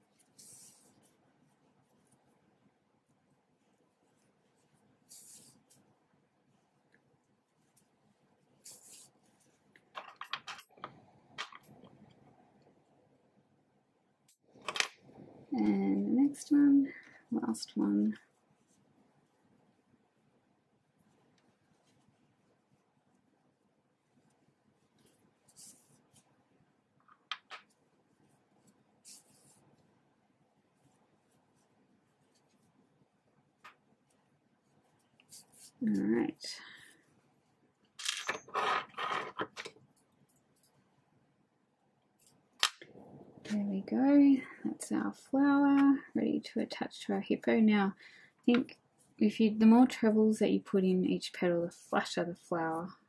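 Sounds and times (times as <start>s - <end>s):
yarn rustling: 0.0s - 9.9s, 23.9s - 26.4s, 27.7s - 37.6s.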